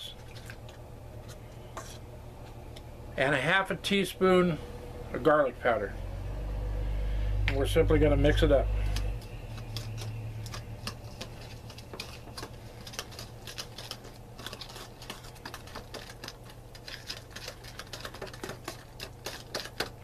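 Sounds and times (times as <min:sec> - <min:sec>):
whisk clicking against bowl: 0:08.9 - 0:20.0.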